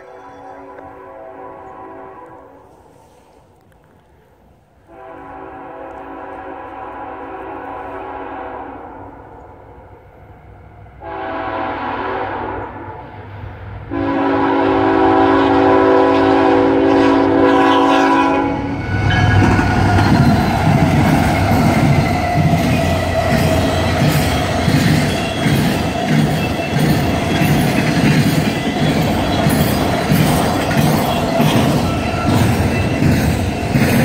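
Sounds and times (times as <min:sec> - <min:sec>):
locomotive air horn blasts: 0:00.0 - 0:02.7, 0:04.9 - 0:09.2, 0:11.0 - 0:13.0, 0:13.9 - 0:19.5
train passing with wheel clatter: 0:00.0 - 0:34.0.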